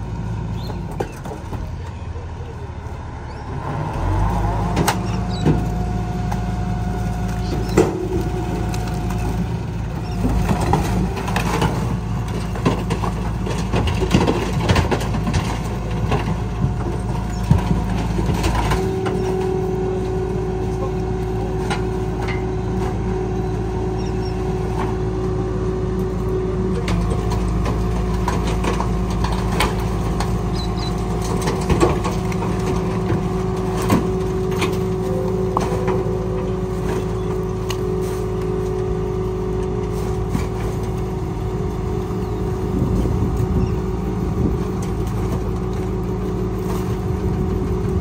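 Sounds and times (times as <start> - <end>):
garbage truck engine droning: 0.0 - 48.0
rubbish knocking and clattering: 10.2 - 19.5, 26.8 - 37.5.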